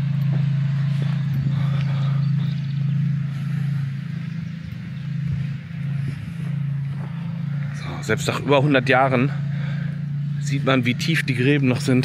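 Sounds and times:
motor droning: 0.0 - 12.0.

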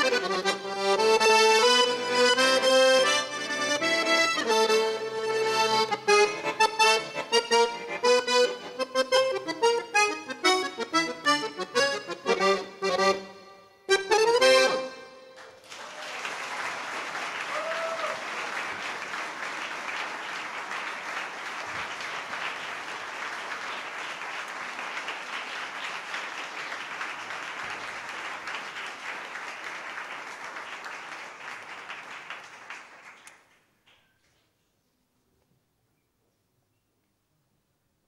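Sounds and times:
accordion chord: 0.0 - 15.4
audience applauding: 15.4 - 34.0.

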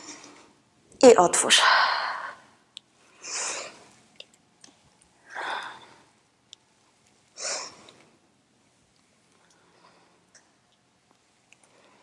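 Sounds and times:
woman breathing: 1.6 - 3.9, 5.2 - 6.2, 7.4 - 8.2, 9.4 - 10.4, 11.6 - 12.0.

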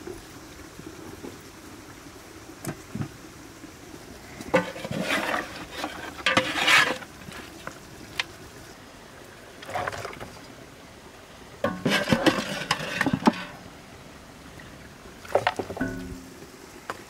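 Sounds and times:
ladle scraping pot of broth: 4.5 - 7.7, 11.6 - 13.6.

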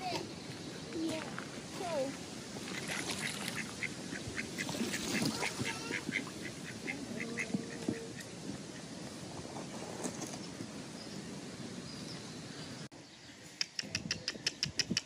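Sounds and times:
ducks quacking: 2.7 - 8.9.

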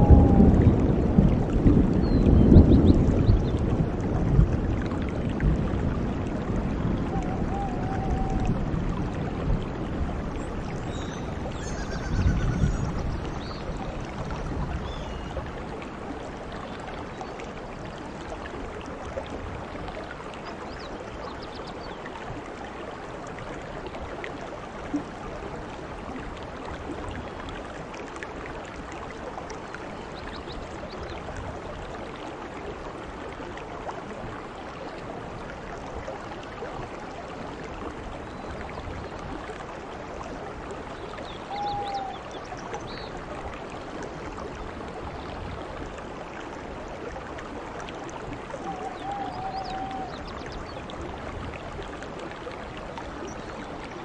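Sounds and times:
heavy rain on foliage: 0.0 - 18.7, 39.7 - 50.4.

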